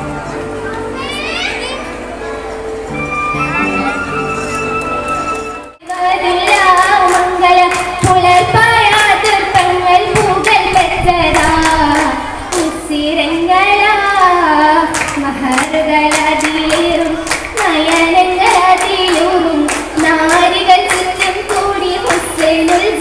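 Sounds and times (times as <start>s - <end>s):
hand claps: 5.8s - 10.6s, 14.9s - 23.0s
young women singing: 5.8s - 23.0s.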